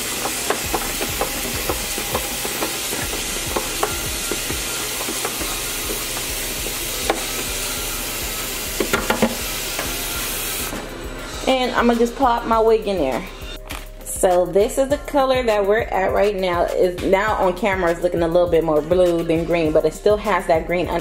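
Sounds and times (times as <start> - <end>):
tap water pouring into tub: 0.0 - 10.8.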